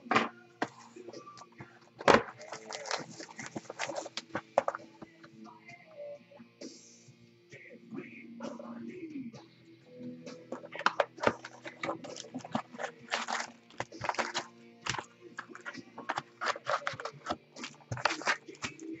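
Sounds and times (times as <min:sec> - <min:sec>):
faint background music: 0:00.0 - 0:19.0
card packs being torn open: 0:02.0 - 0:04.8, 0:10.5 - 0:19.0.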